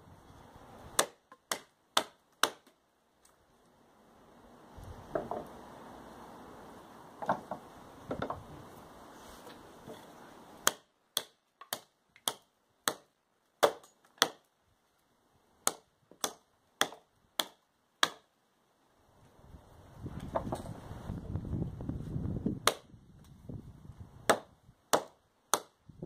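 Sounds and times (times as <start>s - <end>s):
knife chopping into wood: 1.0s - 2.7s, 10.6s - 14.4s, 22.6s - 22.9s, 24.3s - 25.7s.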